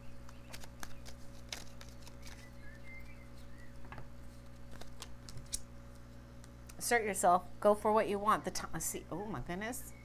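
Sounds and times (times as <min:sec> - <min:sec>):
low electrical hum: 0:00.0 - 0:10.0
cards being shuffled: 0:00.2 - 0:03.2, 0:03.9 - 0:06.6.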